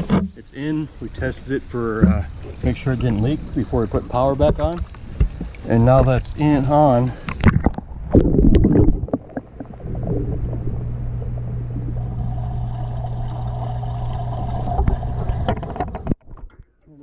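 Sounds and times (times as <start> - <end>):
low hum underwater: 0.0 - 16.2
water sloshing and splashing: 1.9 - 6.5.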